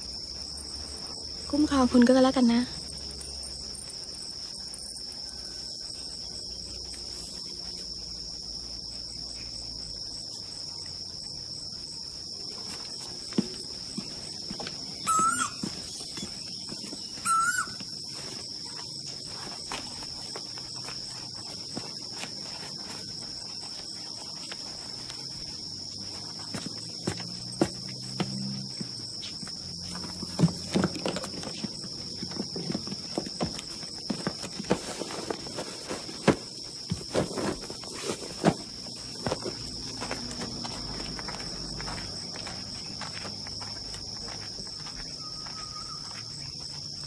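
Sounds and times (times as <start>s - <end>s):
insect chorus drone: 0.0s - 47.0s
warbling bird calls: 14.9s - 17.9s.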